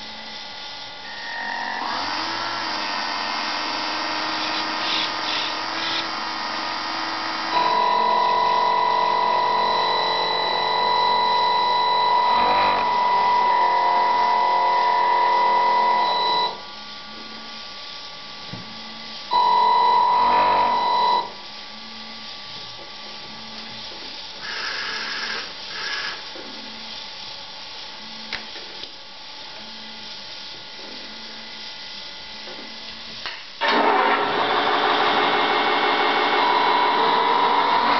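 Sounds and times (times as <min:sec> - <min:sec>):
electronic horn tone: 0:07.5 - 0:16.6, 0:19.3 - 0:21.4.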